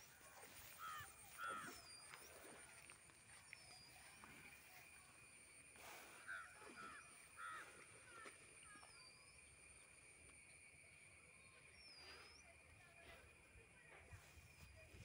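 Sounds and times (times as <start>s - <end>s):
faint bird calls: 0.0s - 5.0s, 5.6s - 9.9s.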